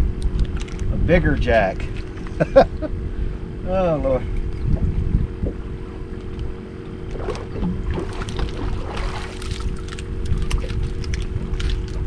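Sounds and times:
steady low hum: 0.0s - 12.0s
wind buffeting microphone: 0.0s - 12.0s
water lapping at boat hull: 4.6s - 12.0s
fish splashing at surface: 7.1s - 12.0s.

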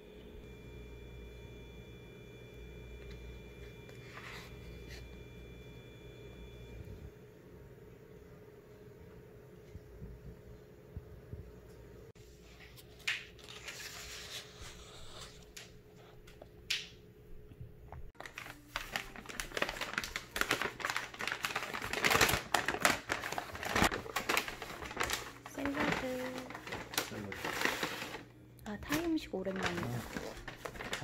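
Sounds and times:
book pages rustling: 12.4s - 15.7s, 18.2s - 28.2s, 28.9s - 31.0s
paper bag crinkling: 12.8s - 15.4s, 18.2s - 31.0s.

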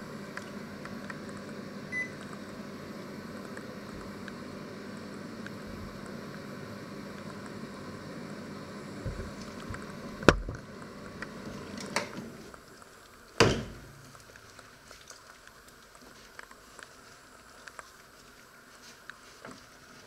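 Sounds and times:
microwave oven humming: 0.0s - 14.8s.

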